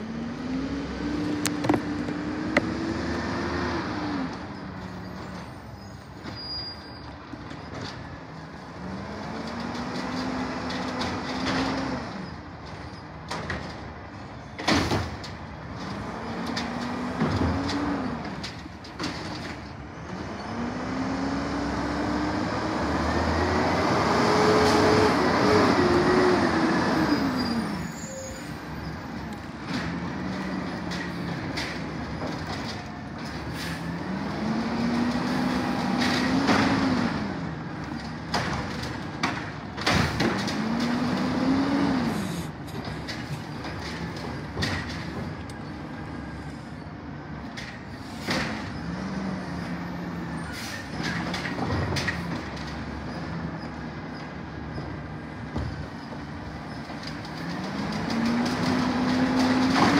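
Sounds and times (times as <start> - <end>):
garbage truck diesel engine revving: 0.0 - 5.1, 19.9 - 28.1, 28.7 - 47.5, 56.5 - 59.9.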